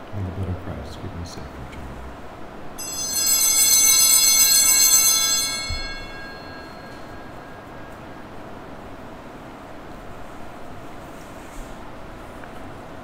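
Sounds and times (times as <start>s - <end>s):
altar bells ringing: 2.8s - 8.5s.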